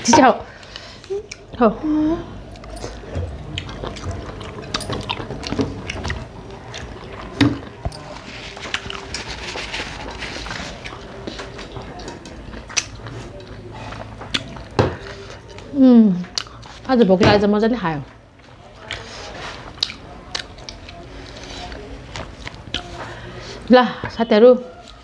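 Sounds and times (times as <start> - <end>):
wet chewing and lip smacks: 10.4 - 14.7, 18.8 - 21.0.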